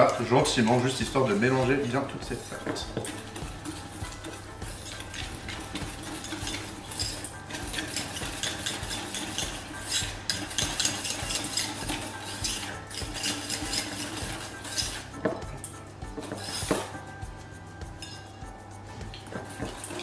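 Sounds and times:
whisk clinking in metal bowl: 0:00.0 - 0:17.1, 0:18.0 - 0:18.4
whisk knocking against bowl: 0:00.5 - 0:15.6.

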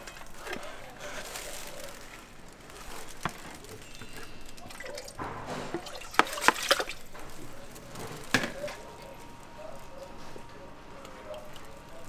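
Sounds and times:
rice and water pouring into pot: 0:00.0 - 0:10.4
water dripping and splashing: 0:00.0 - 0:12.0
sharp knocks: 0:05.2 - 0:07.4.

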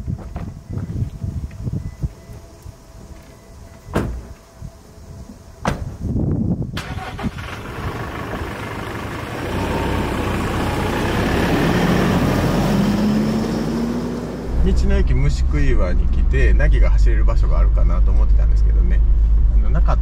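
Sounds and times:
van door shutting: 0:03.8 - 0:04.5, 0:05.6 - 0:07.1
van engine running: 0:06.8 - 0:20.0.

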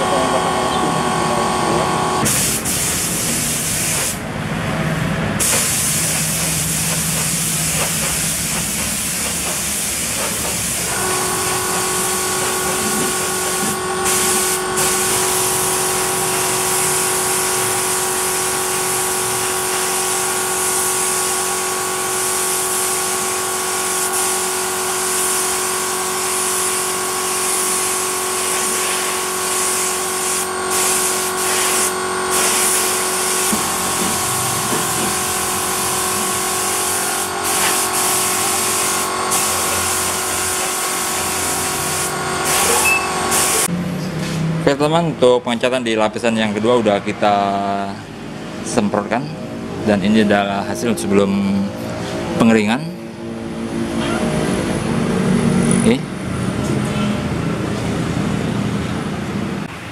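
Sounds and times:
steady multi-tone hum: 0:00.0 - 0:43.8
spray gun hissing: 0:02.2 - 0:04.2, 0:05.4 - 0:43.7.

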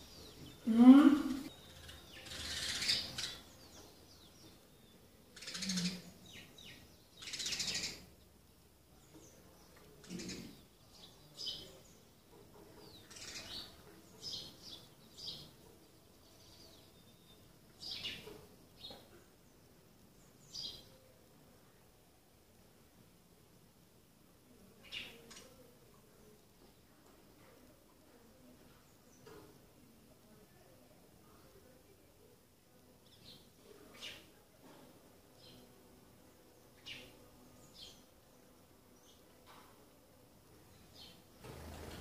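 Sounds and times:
sparrows chirping: 0:00.0 - 0:21.2, 0:24.6 - 0:26.9, 0:33.0 - 0:39.7, 0:40.4 - 0:42.0.

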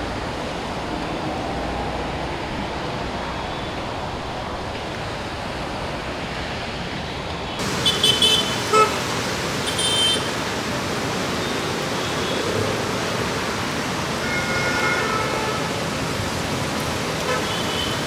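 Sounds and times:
traffic passing: 0:00.0 - 0:18.0
heavy rain falling on road: 0:07.6 - 0:18.0
vehicle horns tooting: 0:07.7 - 0:10.4, 0:14.2 - 0:15.8, 0:17.2 - 0:18.0.

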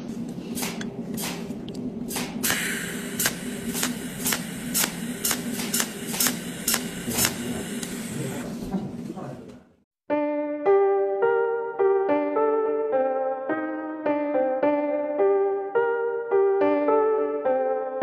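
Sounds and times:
electrical hum: 0:00.0 - 0:09.8
welding arc crackling: 0:02.1 - 0:08.5.

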